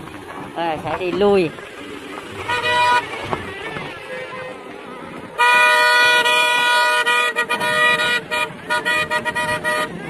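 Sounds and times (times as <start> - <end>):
vehicle horn honking: 2.4 - 4.7, 5.4 - 10.0.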